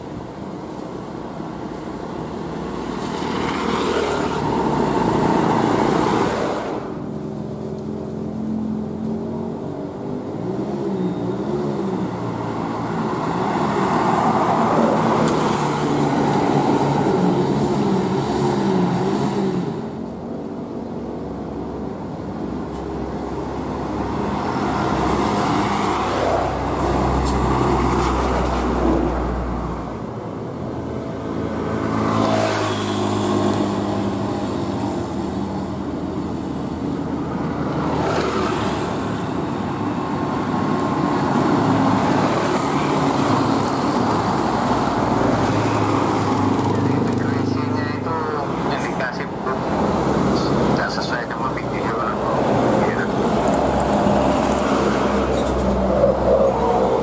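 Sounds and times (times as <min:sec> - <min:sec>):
heavy vehicles passing: 0:00.0 - 0:57.0
traffic noise: 0:00.0 - 0:57.0.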